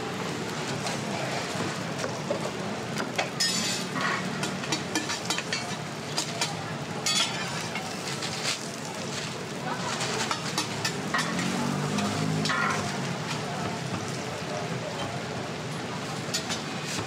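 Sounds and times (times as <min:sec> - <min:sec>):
metal utensils clinking and scraping: 0:03.2 - 0:13.0, 0:16.2 - 0:17.0.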